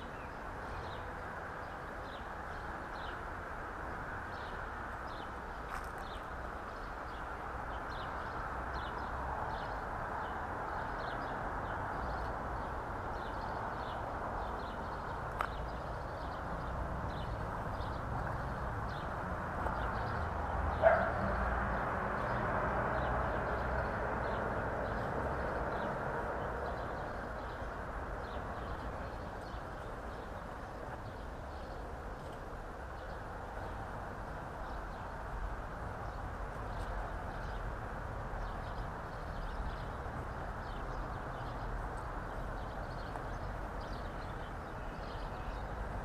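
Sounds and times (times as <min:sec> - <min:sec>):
small birds chirping: 0:04.2 - 0:22.4, 0:23.0 - 0:33.9, 0:35.9 - 0:46.0.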